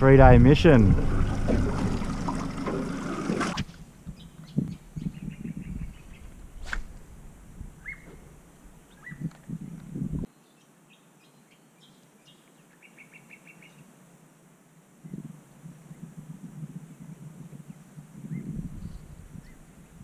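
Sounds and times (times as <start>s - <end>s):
wind and water noise from boat: 0.0s - 6.7s
low thumps: 0.0s - 8.5s
bird chirps: 7.8s - 8.2s, 8.9s - 9.3s.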